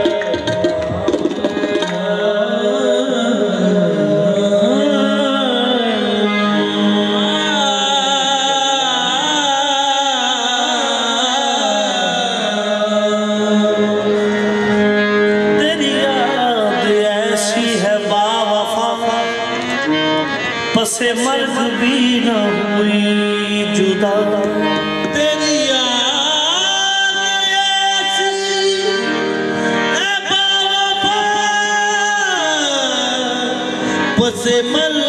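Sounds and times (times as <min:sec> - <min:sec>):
harmonium chords: 0:00.0 - 0:35.0
person singing long wavering notes: 0:01.8 - 0:18.2.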